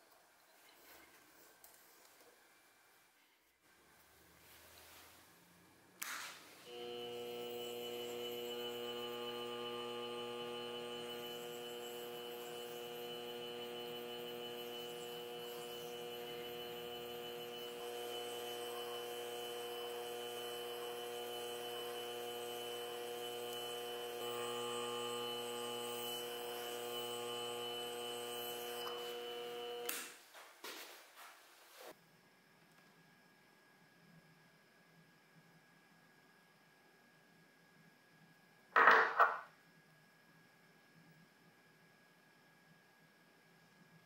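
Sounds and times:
lathe motor humming and whining: 0:06.7 - 0:29.9.

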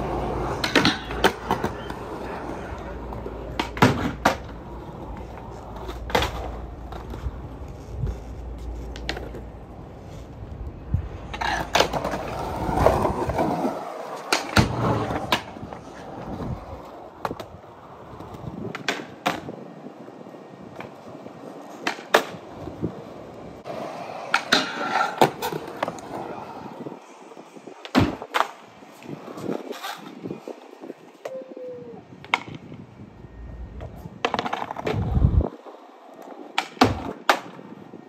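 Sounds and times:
skateboard clacks: 0:00.0 - 0:09.7, 0:11.2 - 0:19.7, 0:20.7 - 0:26.8, 0:32.2 - 0:32.8, 0:33.8 - 0:37.8
skateboard wheels rolling on concrete: 0:00.0 - 0:38.0.

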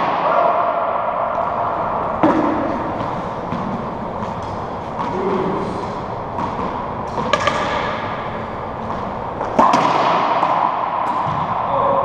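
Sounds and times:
racquetball hits echoing: 0:00.0 - 0:12.0
ball cracking on racquet and wall: 0:02.2 - 0:05.6, 0:06.3 - 0:11.6.

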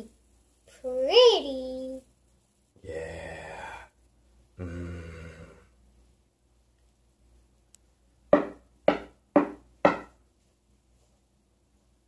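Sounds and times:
knocking on a door: 0:08.3 - 0:10.2.

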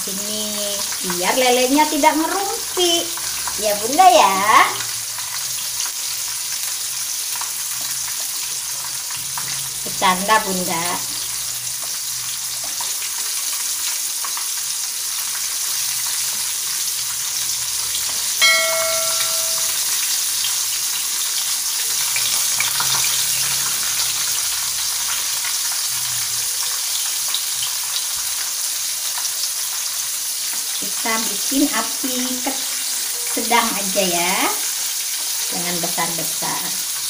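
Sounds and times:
fish deep-frying in oil: 0:00.0 - 0:37.0
bell-like chime: 0:18.4 - 0:20.1.

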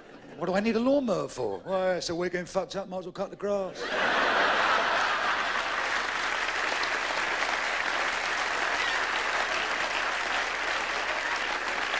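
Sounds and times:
audience applauding: 0:04.2 - 0:11.9.

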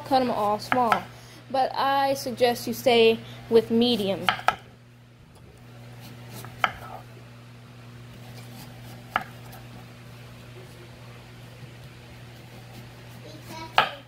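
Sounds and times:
knife striking cutting board: 0:04.2 - 0:04.6, 0:09.1 - 0:09.4, 0:13.7 - 0:14.0.

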